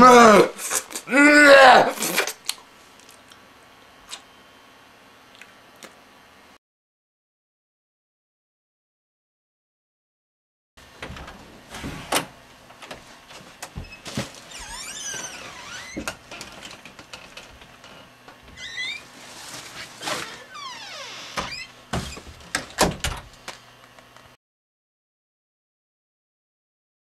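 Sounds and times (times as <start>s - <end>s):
door hinges creaking: 13.6s - 19.2s, 20.0s - 23.3s.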